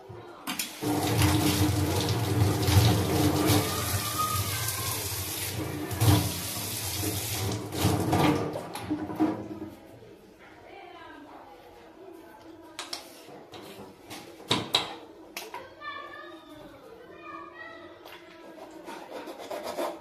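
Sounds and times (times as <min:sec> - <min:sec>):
tap water splashing into sink: 0:00.5 - 0:09.6.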